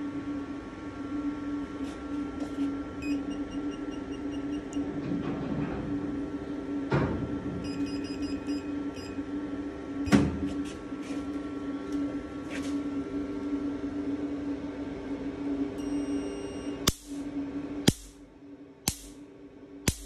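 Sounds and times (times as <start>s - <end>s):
laser machine humming: 0.0s - 5.1s, 6.0s - 18.2s.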